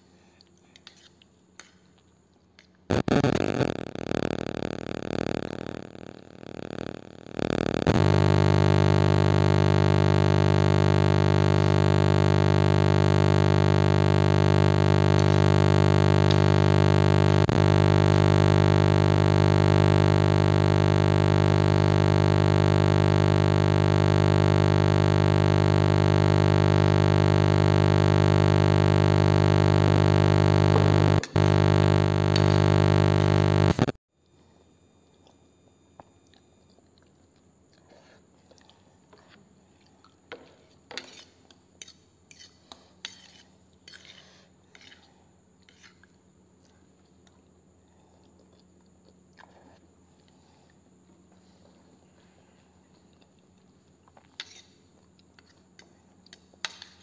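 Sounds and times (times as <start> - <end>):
synthesizer drone: 6.6 - 33.9.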